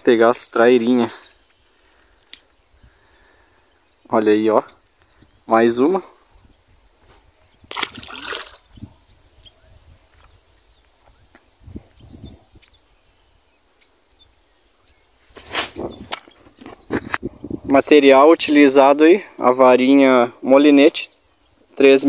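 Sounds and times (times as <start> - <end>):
grass rustling: 4.2 - 20.5
fish splashing into water: 7.7 - 8.7.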